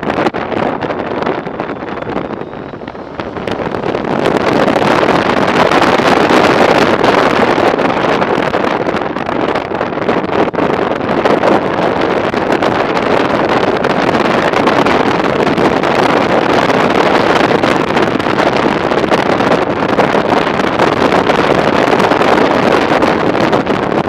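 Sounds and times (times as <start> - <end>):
wind rushing over microphone: 0.0 - 24.0.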